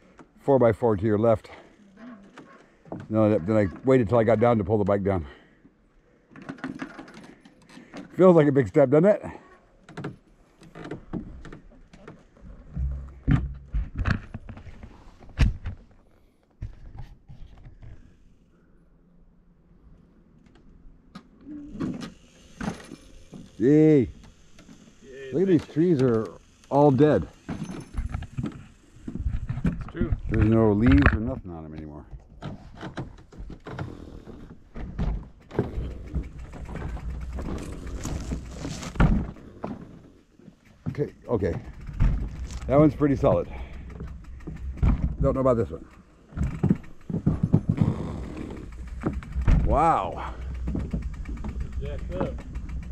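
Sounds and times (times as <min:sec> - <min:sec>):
bike knocking on wooden boardwalk: 0:09.9 - 0:15.8, 0:29.1 - 0:52.9
footsteps on wooden boards: 0:43.5 - 0:52.9.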